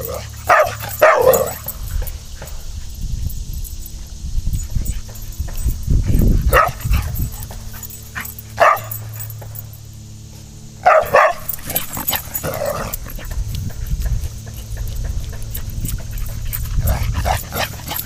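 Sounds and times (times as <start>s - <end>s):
dog barking: 0.0s - 2.5s, 6.5s - 9.2s, 10.8s - 13.4s.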